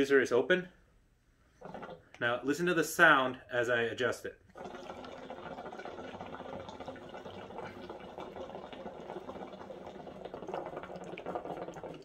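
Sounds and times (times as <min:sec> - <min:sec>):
water bubbling in hookah: 0:01.6 - 0:02.4, 0:04.5 - 0:12.0.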